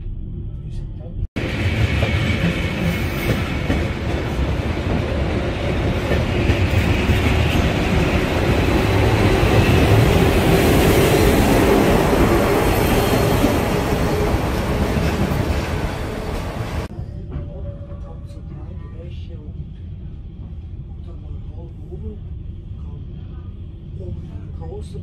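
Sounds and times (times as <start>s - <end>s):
train wheels rumbling on rails: 1.4s - 22.1s
high wheel squeal: 12.3s - 14.5s.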